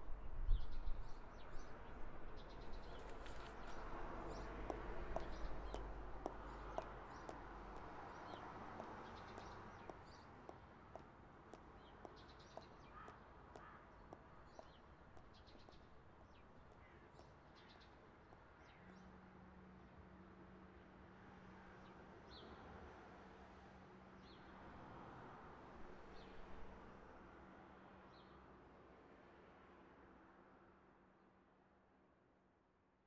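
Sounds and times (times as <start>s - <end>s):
small birds chirping: 2.4s - 18.0s
footsteps on pavement: 2.7s - 17.3s.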